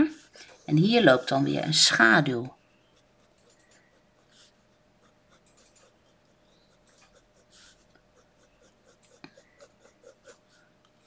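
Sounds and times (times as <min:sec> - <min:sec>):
pen scratching on paper: 0:02.8 - 0:10.6.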